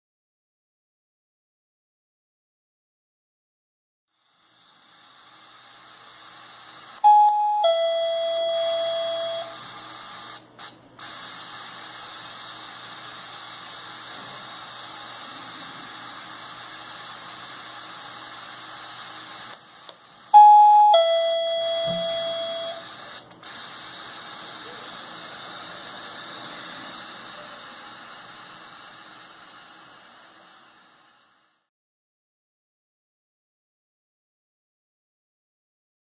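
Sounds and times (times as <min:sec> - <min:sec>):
steady hiss: 0:04.1 - 0:07.0, 0:09.2 - 0:20.3, 0:21.4 - 0:31.7
doorbell ding-dong chime: 0:07.0 - 0:09.6, 0:20.4 - 0:22.8.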